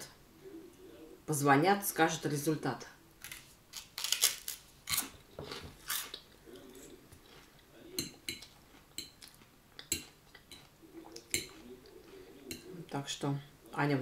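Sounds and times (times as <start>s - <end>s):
chewing: 4.9s - 12.9s.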